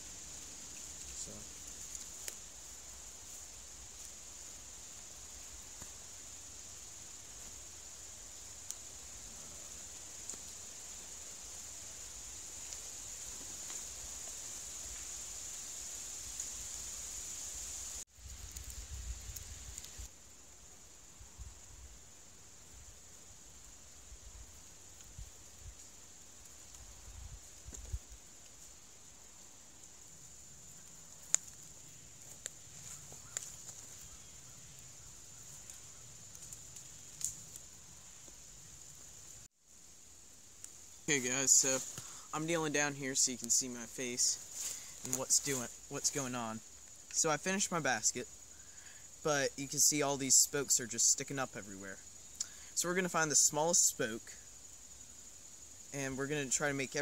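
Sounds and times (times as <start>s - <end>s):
twigs ticking while weaving: 0.0s - 20.1s, 23.0s - 39.5s, 40.5s - 48.2s
faint steady hiss: 0.0s - 57.0s
insects chirring: 0.0s - 57.0s.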